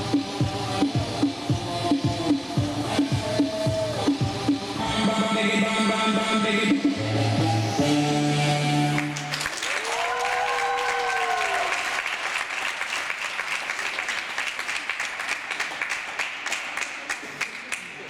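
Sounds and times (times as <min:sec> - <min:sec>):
audience applause: 0:09.0 - 0:18.0
cheering whoop: 0:09.6 - 0:12.1.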